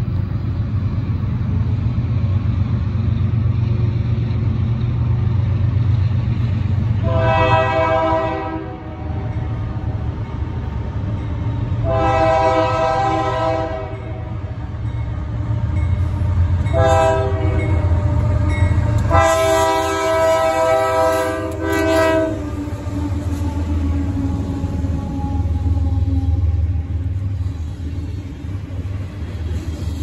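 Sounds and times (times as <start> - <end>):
train rumbling: 0.0 - 30.0
locomotive air horn blasts: 7.0 - 9.3, 11.8 - 14.4, 15.4 - 23.6.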